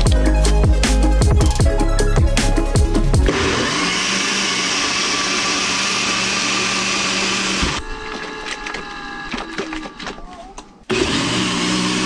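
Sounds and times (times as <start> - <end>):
blender motor running: 3.3 - 9.8, 10.9 - 12.0.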